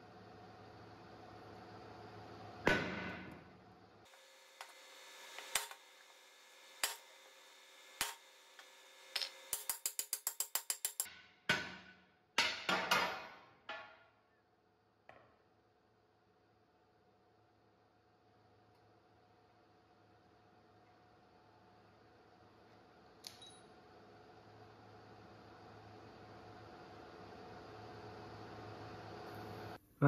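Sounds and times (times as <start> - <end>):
sledgehammer striking steel: 11.4 - 13.3.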